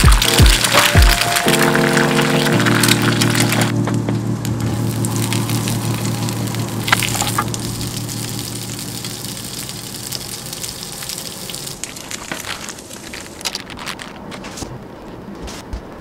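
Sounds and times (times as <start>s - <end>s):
sausages sizzling in a pan: 0.0s - 3.7s, 4.8s - 13.4s
light clicks and crackles: 11.8s - 16.0s.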